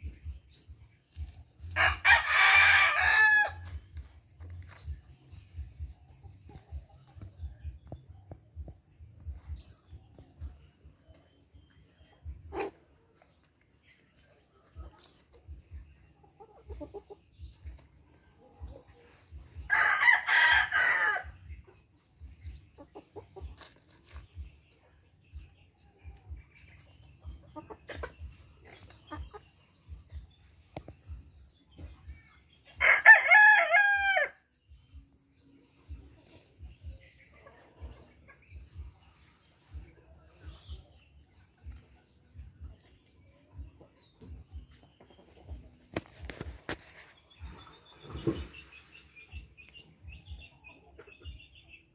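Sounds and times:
rooster crowing: 0:19.7 - 0:21.2.

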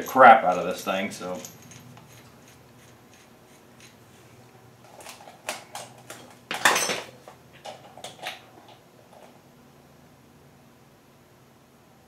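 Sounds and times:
wrench clicking and scraping: 0:00.0 - 0:04.1.

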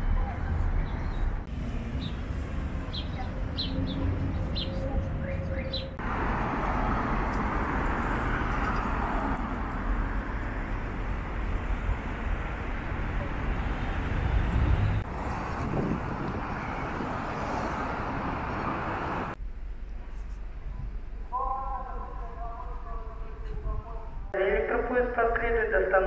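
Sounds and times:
moving vehicle rushing noise: 0:00.0 - 0:19.4
small birds chirping: 0:02.9 - 0:06.0.

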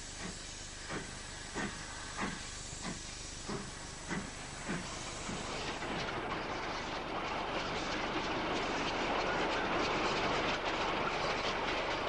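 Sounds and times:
train running past: 0:00.0 - 0:12.0.

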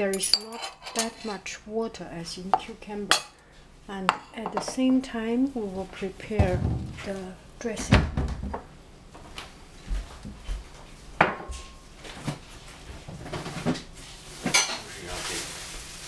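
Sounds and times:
dishes and utensils clinking: 0:00.0 - 0:01.4, 0:11.3 - 0:11.8, 0:14.4 - 0:14.9.

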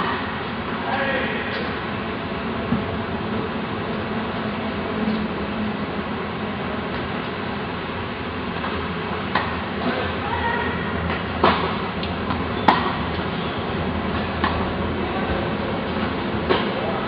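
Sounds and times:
steady background hum: 0:00.0 - 0:17.0
tennis balls bouncing: 0:06.8 - 0:07.4, 0:08.6 - 0:10.1, 0:11.0 - 0:17.0
tennis balls struck by rackets: 0:08.6 - 0:10.1, 0:11.0 - 0:13.3, 0:14.0 - 0:17.0.

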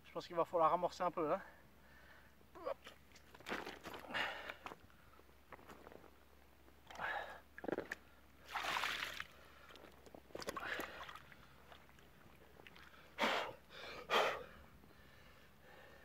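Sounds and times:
water splashing and sloshing: 0:02.8 - 0:04.8, 0:06.8 - 0:13.2.

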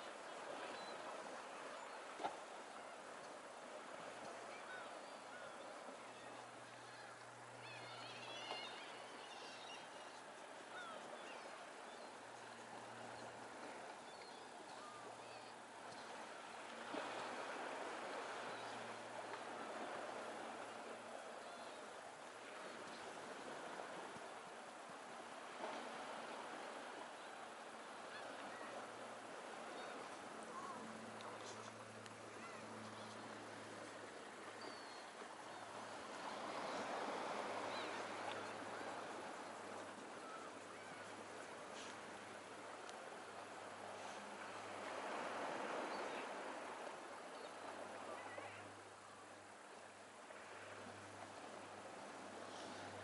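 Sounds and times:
waves: 0:00.0 - 0:53.0
wind: 0:00.0 - 0:53.0
faint bird chirps: 0:00.6 - 0:01.0, 0:04.6 - 0:13.3, 0:34.6 - 0:35.7.

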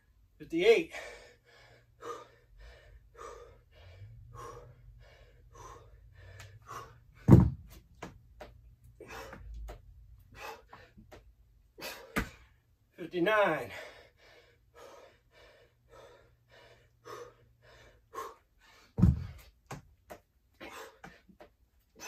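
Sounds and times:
man panting hard: 0:00.9 - 0:07.3, 0:08.9 - 0:12.6, 0:13.6 - 0:19.5, 0:20.6 - 0:22.0
dumbbells thudding on floor: 0:07.2 - 0:08.6, 0:12.0 - 0:12.4, 0:19.0 - 0:19.9.

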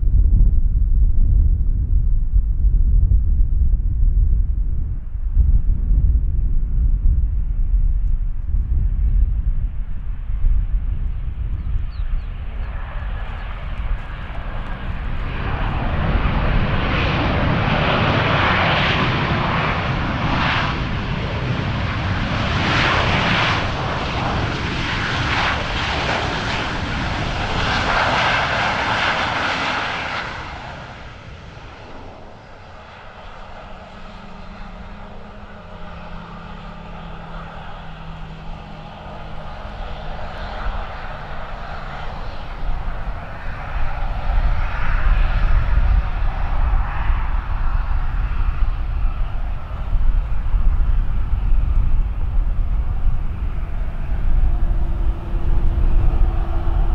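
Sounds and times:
low engine hum: 0:00.0 - 0:56.9
jet engines roaring: 0:09.9 - 0:56.9.

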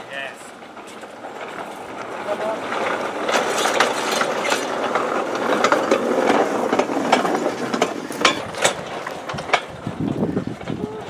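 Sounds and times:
metal wagon clattering on rails: 0:00.0 - 0:11.0
sharp metal clanks: 0:06.7 - 0:08.9.

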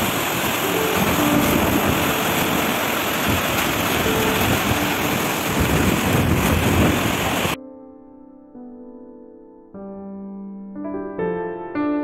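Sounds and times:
waterfall falling onto rocks: 0:00.0 - 0:07.6.

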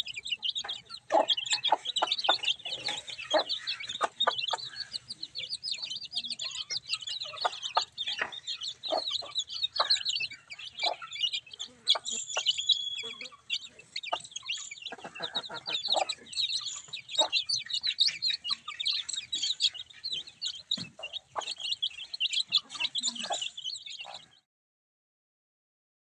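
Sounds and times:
chicks peeping: 0:00.0 - 0:24.4
hen clucking: 0:00.0 - 0:24.4.

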